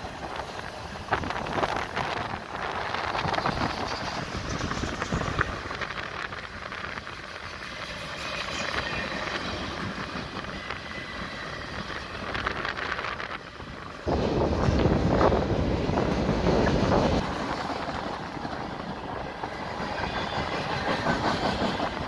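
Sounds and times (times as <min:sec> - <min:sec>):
freight train wheels rumbling: 0:00.0 - 0:22.0
wind gust on microphone: 0:08.8 - 0:18.3.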